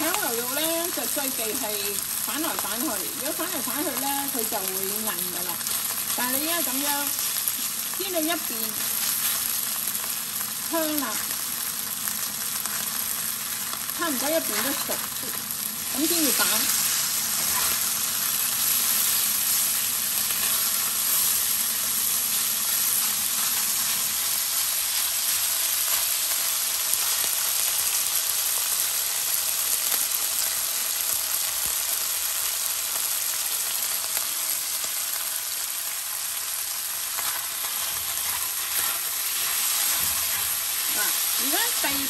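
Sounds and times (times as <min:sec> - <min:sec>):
beef sizzling in oil: 0:00.0 - 0:42.0
spatula scraping wok: 0:14.3 - 0:26.1, 0:37.2 - 0:42.0.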